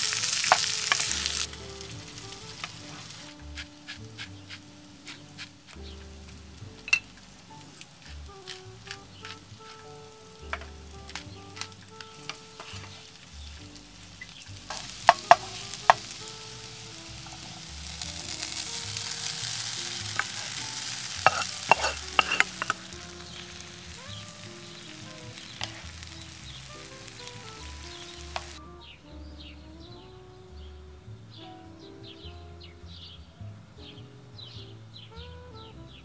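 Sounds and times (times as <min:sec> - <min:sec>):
food sizzling in frying pan: 0:00.0 - 0:04.3, 0:05.0 - 0:28.6
utensil clacking against pan: 0:21.2 - 0:22.8.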